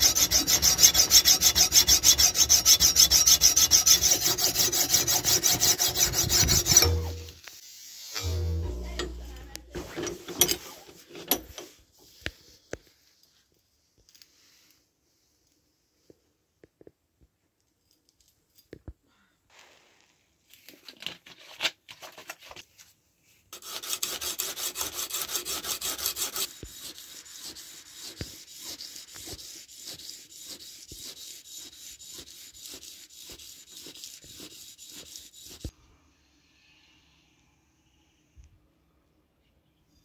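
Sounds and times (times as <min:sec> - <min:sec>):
hand strokes scraping a steel blade: 0:00.0 - 0:12.2, 0:23.6 - 0:35.7.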